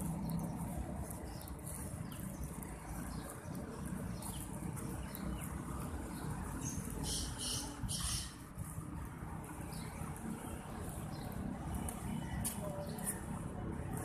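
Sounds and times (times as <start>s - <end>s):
bird chirps: 6.6s - 8.4s.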